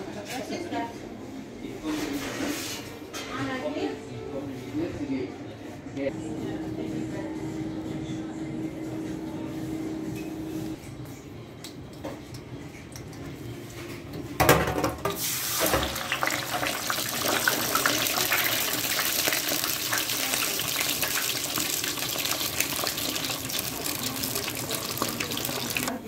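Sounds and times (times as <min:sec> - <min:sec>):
oil bubbling and sizzling: 0:15.1 - 0:26.0.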